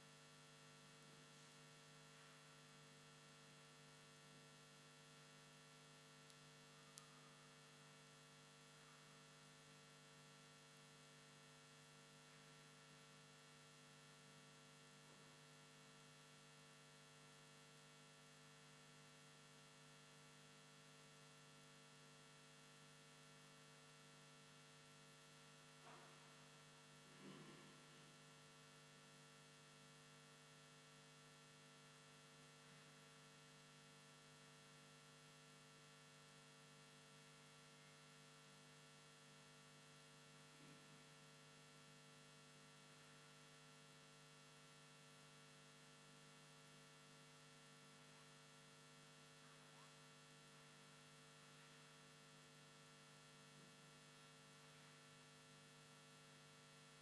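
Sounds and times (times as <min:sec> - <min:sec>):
faint electrical hum: 0:00.0 - 0:57.0.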